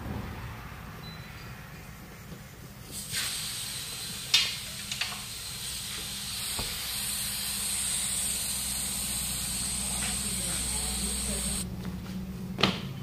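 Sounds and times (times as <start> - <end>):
compressed air hissing: 2.9 - 11.6.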